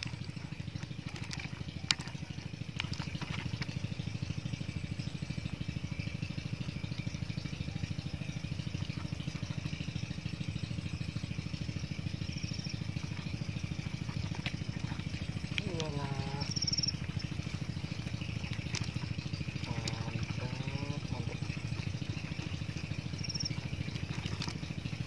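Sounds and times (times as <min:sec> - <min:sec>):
small engine running: 0:00.0 - 0:25.0.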